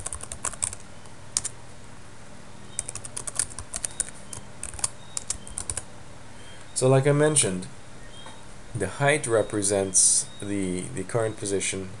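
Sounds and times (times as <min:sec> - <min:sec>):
computer keyboard typing: 0:00.0 - 0:00.8, 0:02.8 - 0:05.9.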